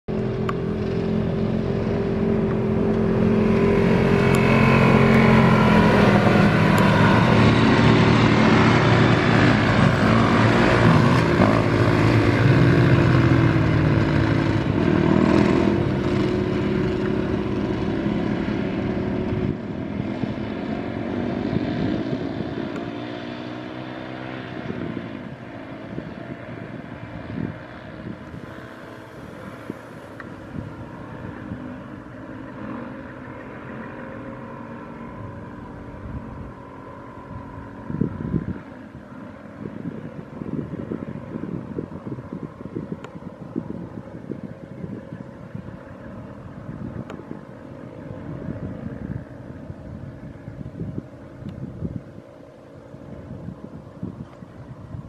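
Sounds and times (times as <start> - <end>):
quads revving past: 1.3 - 38.9.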